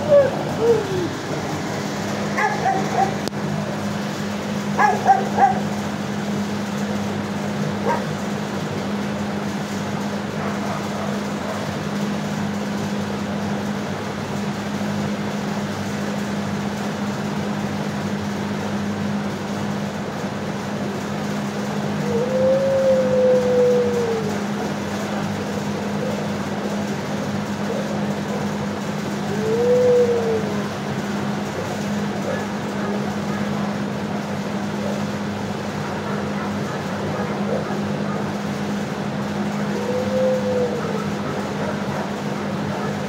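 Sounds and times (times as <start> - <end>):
dogs barking: 0.0 - 1.2, 2.1 - 3.4, 4.6 - 5.8, 7.7 - 8.4, 10.3 - 11.8, 31.5 - 33.7, 34.6 - 38.8, 39.4 - 43.0
steady low hum: 0.0 - 43.0.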